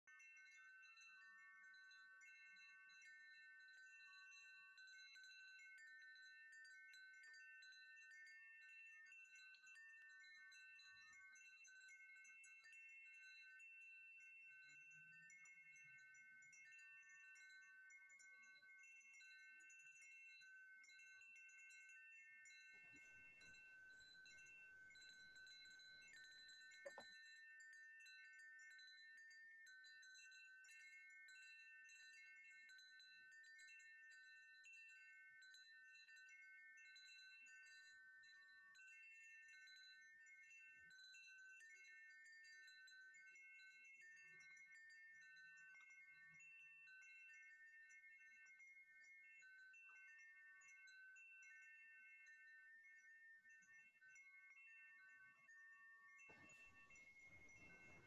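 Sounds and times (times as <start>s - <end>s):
faint chimes ringing: 14.6s - 29.0s, 54.9s - 58.0s.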